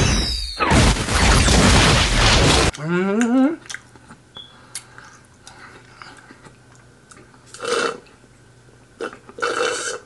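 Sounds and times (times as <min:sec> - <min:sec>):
chewing and mouth clicks: 0:03.2 - 0:07.7.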